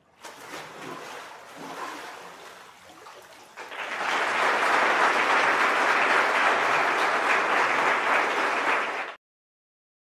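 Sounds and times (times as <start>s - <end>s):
crowd applauding: 3.6s - 9.2s.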